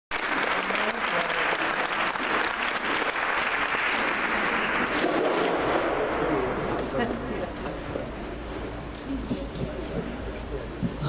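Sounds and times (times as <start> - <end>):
audience applauding: 0.1 - 6.0
faint voices: 6.0 - 11.0.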